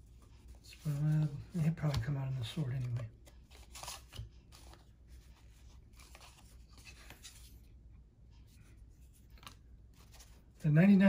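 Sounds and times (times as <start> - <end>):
trading cards rustling and tapping: 0.1 - 7.7.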